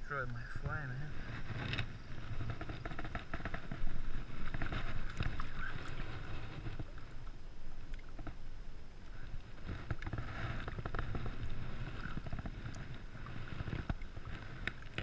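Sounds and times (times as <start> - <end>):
wind rumble on microphone: 0.0 - 15.0
water splashing among rocks: 0.3 - 8.4.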